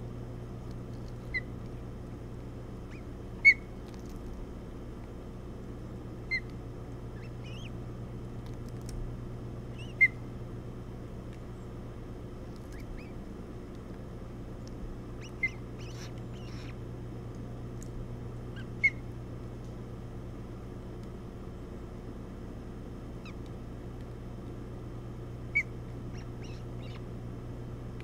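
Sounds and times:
steady low hum: 0.0 - 28.0
thin bird calls: 0.6 - 1.7, 2.8 - 4.3, 6.2 - 8.9, 9.7 - 10.3, 12.4 - 13.3, 14.6 - 16.9, 18.4 - 19.2, 23.2 - 23.6, 25.5 - 27.2
ospreys chirping sharply: 7.2 - 7.8, 15.2 - 16.8.

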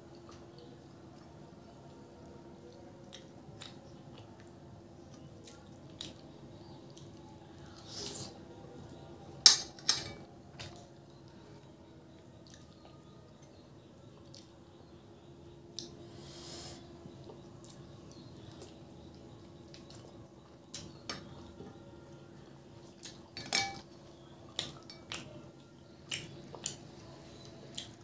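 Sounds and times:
chewing and wet mouth noises: 2.1 - 9.0, 10.5 - 14.6, 15.7 - 16.0, 17.0 - 21.5, 24.2 - 28.0.

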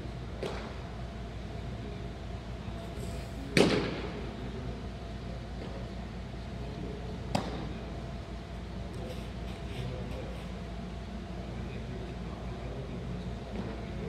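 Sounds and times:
loud thud with ringing echo: 3.6 - 4.2.

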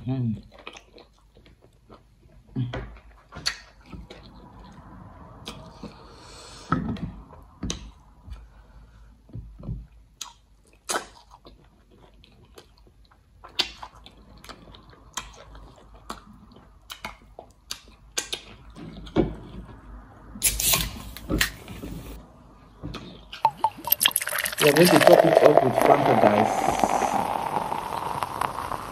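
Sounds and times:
wet chewing and lip smacks: 0.4 - 2.4, 10.2 - 19.6
drink can opening with fizz: 23.4 - 28.9
finger sucking: 23.5 - 28.9.

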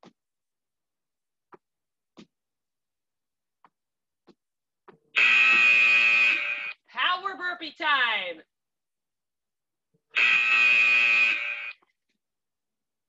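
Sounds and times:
electronic timer tone: 10.2 - 11.8.

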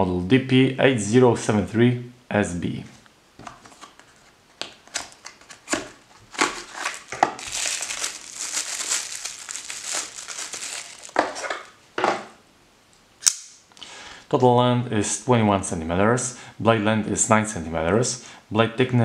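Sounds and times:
plastic wrapping crinkling: 4.8 - 11.8.

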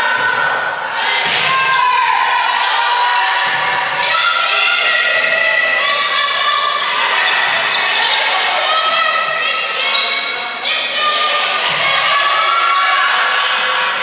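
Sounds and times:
voices calling out: 0.0 - 14.0
shoes squeaking on court floor: 9.8 - 11.2.

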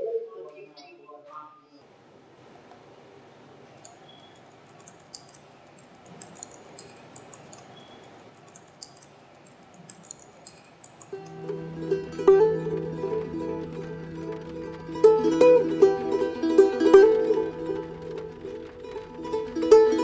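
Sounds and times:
laptop keyboard typing: 3.8 - 11.8
plucked-string music: 11.1 - 20.0.

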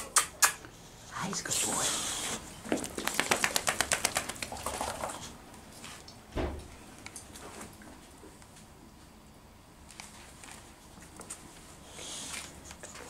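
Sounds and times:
dull thump: 6.4 - 6.7.

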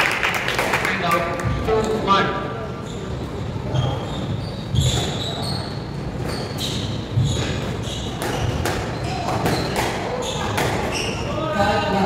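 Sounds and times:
shoes squeaking on wooden floor: 2.8 - 11.4.

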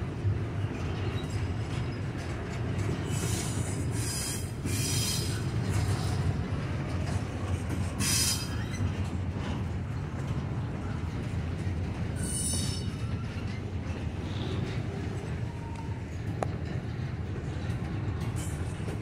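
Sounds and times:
train wheels rumbling on rail: 0.0 - 19.0
high-pitched wheel squeal: 12.2 - 13.5.

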